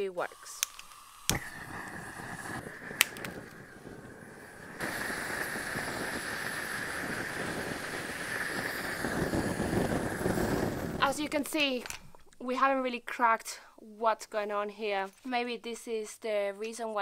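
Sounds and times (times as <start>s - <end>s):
propane torch hissing: 0.0s - 11.4s.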